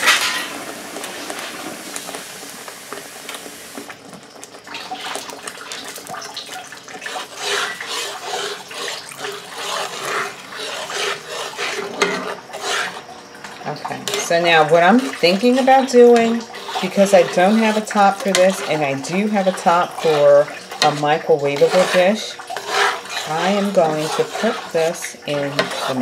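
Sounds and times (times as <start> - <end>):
metal spatula scraping pan: 0.0 - 1.6, 6.9 - 13.1, 13.9 - 26.0
water running in a stream: 12.4 - 26.0.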